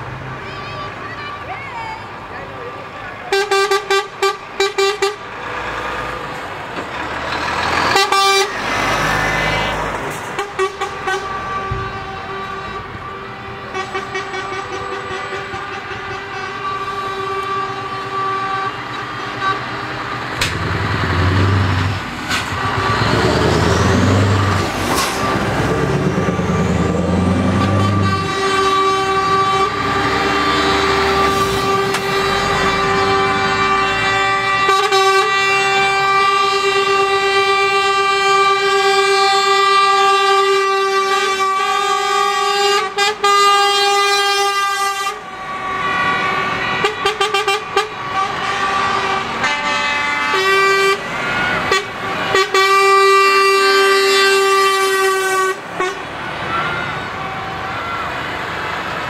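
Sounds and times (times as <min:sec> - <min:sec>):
truck engine rumbling: 0:00.0 - 0:59.0
truck air horns blasting: 0:02.6 - 0:06.4, 0:07.1 - 0:59.0.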